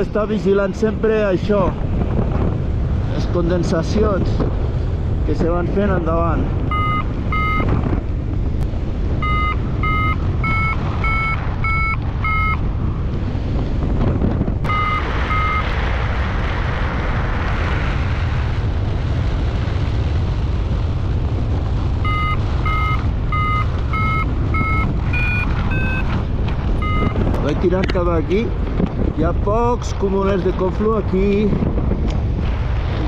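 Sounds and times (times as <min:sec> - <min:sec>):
wind rush on microphone: 0:00.0 - 0:33.0
variometer beeping: 0:06.7 - 0:07.8, 0:09.2 - 0:12.6, 0:14.7 - 0:15.7, 0:22.0 - 0:26.2, 0:26.8 - 0:27.2.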